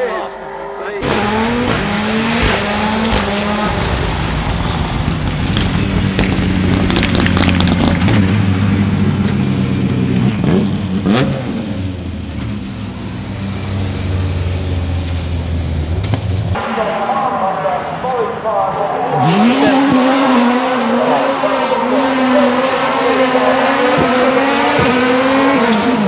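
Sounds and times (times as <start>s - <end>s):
exhaust cracks: 1.0s - 9.5s
rally car engine running hard: 1.0s - 26.0s.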